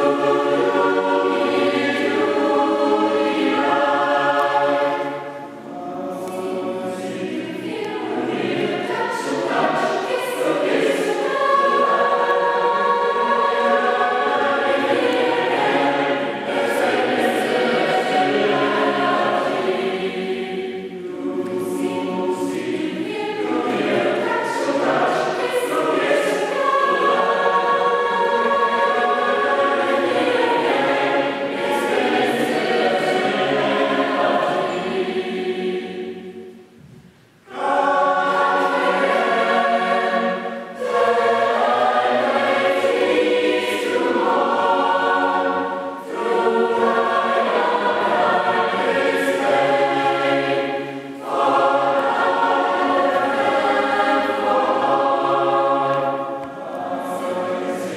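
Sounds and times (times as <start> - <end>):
mixed choir singing: 0.0 - 57.9.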